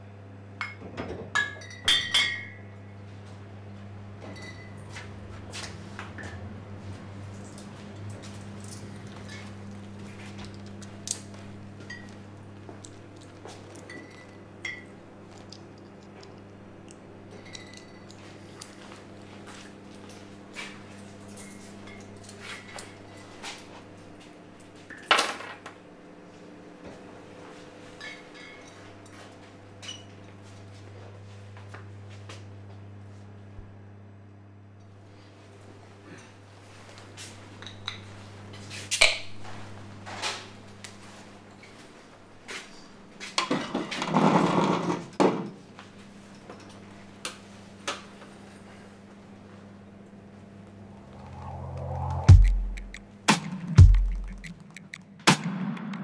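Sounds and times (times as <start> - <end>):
steady low hum: 48.5 - 55.3.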